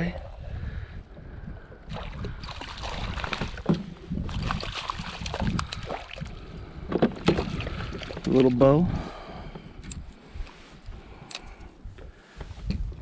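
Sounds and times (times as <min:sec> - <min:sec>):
water sloshing: 0:01.8 - 0:08.8.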